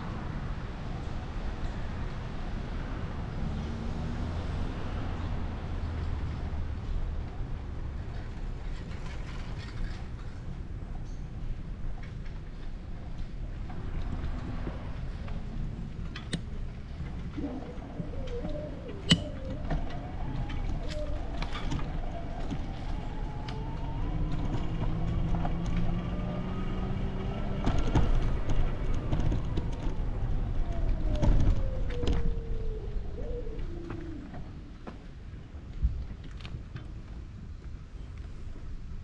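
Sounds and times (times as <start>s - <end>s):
wind rumble on microphone: 0.0s - 39.0s
engine passing at a distance: 1.2s - 10.4s, 13.2s - 34.8s.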